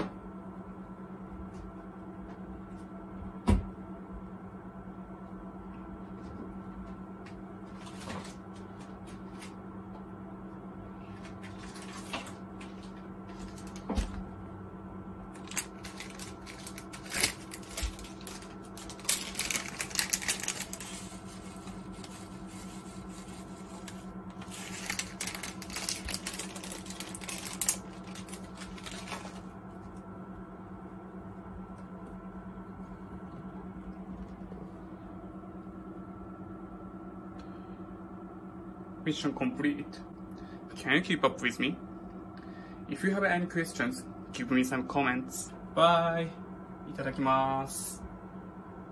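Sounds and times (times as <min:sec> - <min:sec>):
steady low hum: 0:00.0 - 0:48.9
plastic packet crinkling: 0:15.4 - 0:29.5.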